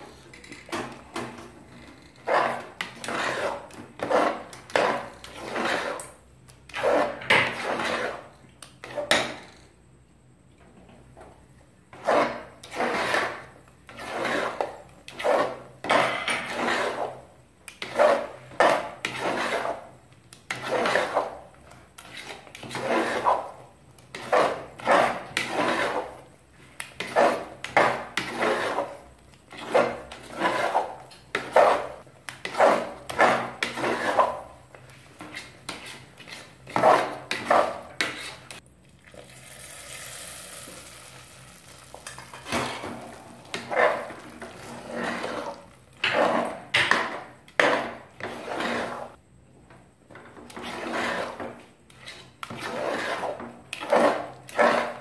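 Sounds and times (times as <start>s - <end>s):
metal ladle scraping pot: 1.7s - 9.2s, 11.9s - 21.4s, 22.0s - 26.3s, 27.0s - 34.6s, 35.2s - 38.6s, 41.7s - 49.2s, 50.4s - 55.0s
hot ghee sizzling: 39.0s - 44.4s.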